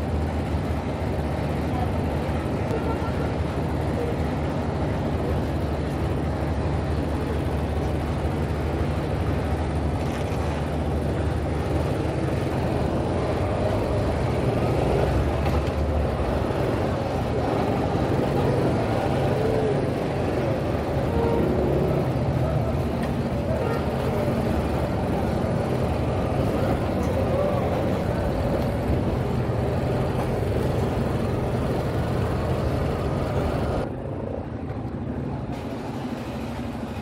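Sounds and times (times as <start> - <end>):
traffic rumble: 0.0 - 37.0
indistinct voices: 16.2 - 32.5.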